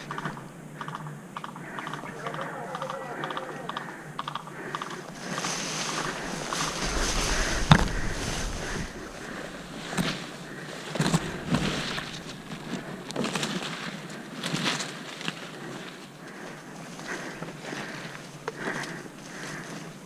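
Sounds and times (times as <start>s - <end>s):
rustling and brushing: 5.1s - 16.0s.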